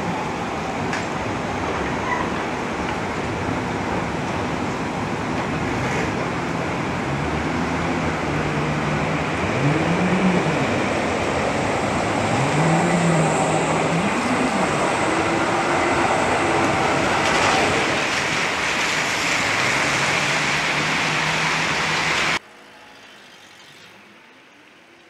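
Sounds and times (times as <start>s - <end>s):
tram wheels rushing on wet rails: 0.0s - 22.4s
tram motor whine: 6.3s - 22.9s
rain pattering: 15.8s - 22.4s.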